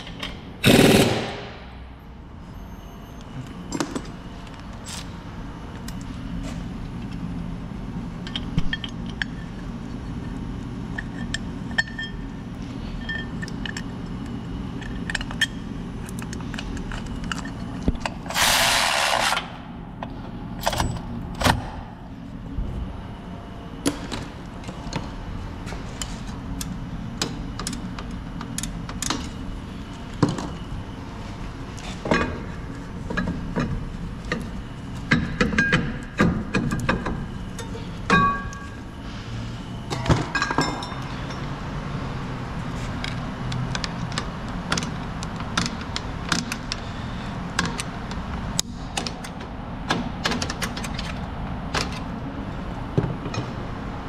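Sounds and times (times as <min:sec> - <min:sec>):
steady low hum: 0:00.0 - 0:54.0
metal tools clinking: 0:13.0 - 0:13.8.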